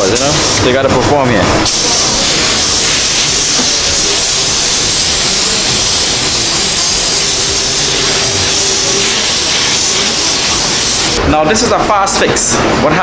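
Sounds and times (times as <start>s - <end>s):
paint spray gun hissing: 1.7s - 11.2s.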